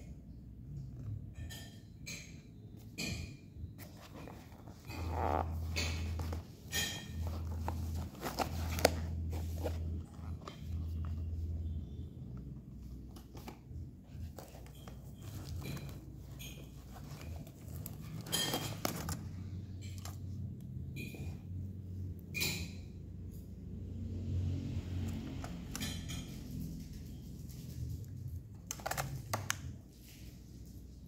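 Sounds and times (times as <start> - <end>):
rustling and scraping of case: 3.7 - 20.4.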